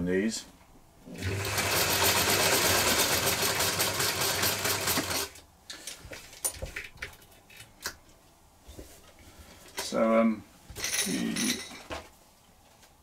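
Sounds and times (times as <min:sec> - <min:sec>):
sewing machine stitching: 0:01.2 - 0:05.4.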